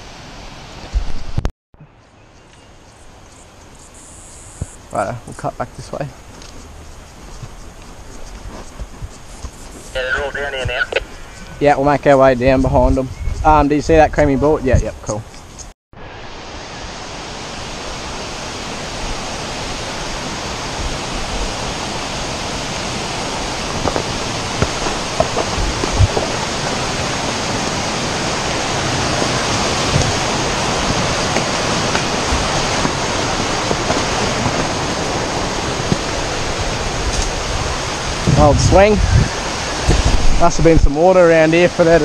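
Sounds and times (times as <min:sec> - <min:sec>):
water rushing over rocks: 0:10.0 - 0:11.7, 0:16.2 - 0:42.0.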